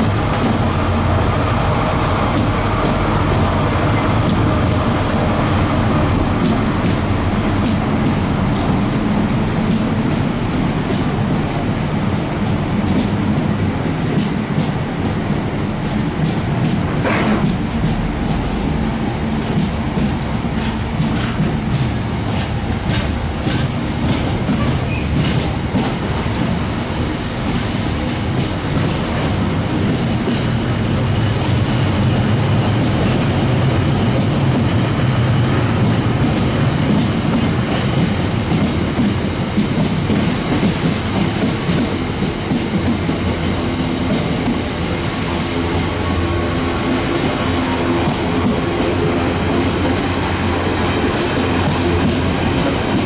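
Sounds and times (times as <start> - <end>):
train wheels rumbling on rail: 0.0 - 53.0
wheels clicking over rail joints: 12.8 - 53.0.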